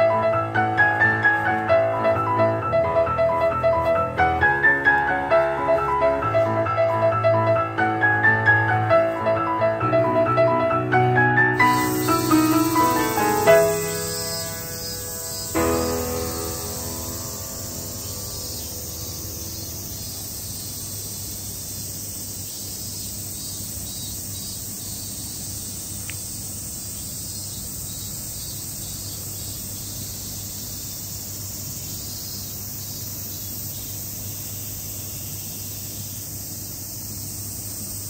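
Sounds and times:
insect chorus: 11.6s - 38.0s.

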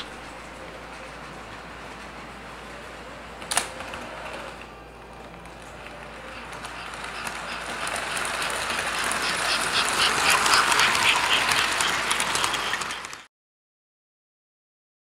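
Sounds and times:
model train wheels clattering: 5.3s - 13.3s.

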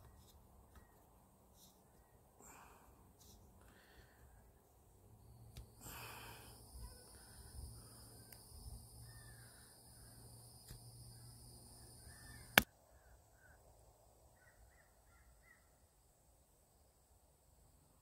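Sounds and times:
crows cawing: 9.0s - 10.1s, 12.0s - 13.5s.

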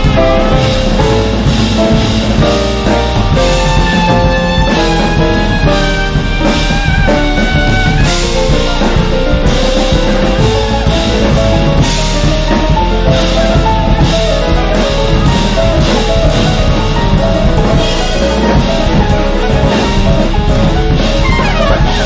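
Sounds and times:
live jazz band playing: 0.0s - 22.0s
trumpet high held note: 3.4s - 9.4s, 21.0s - 22.0s.

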